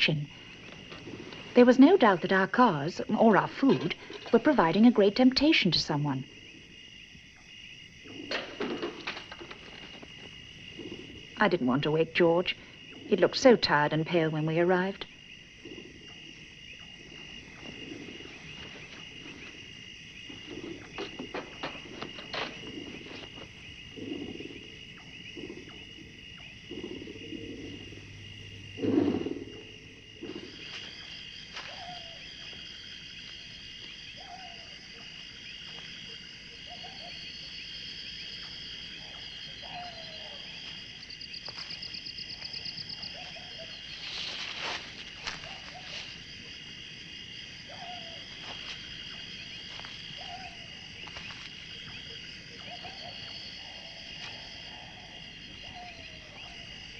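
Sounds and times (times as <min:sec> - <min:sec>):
crickets and insects chirping: 0:00.0 - 0:56.9
soft low rustling: 0:15.7 - 0:32.5, 0:42.9 - 0:46.8
owl hoots: 0:28.8 - 0:30.8, 0:31.6 - 0:32.3, 0:34.2 - 0:34.8, 0:39.0 - 0:40.4, 0:47.7 - 0:48.3, 0:50.1 - 0:50.8, 0:52.5 - 0:56.6.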